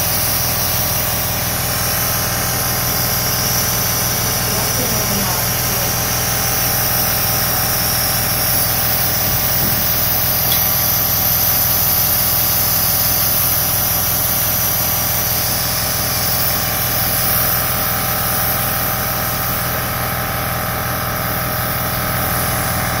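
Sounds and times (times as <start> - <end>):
air hissing: 0.0 - 19.4
nebulizer motor hum: 0.0 - 23.0.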